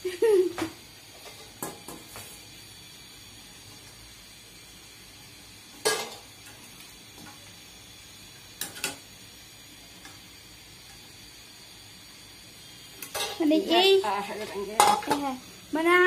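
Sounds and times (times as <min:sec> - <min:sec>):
frying oil sizzling: 0:00.0 - 0:16.0
metal utensil clanking on wok: 0:05.8 - 0:06.2, 0:08.6 - 0:09.0, 0:13.0 - 0:13.4, 0:14.7 - 0:15.3.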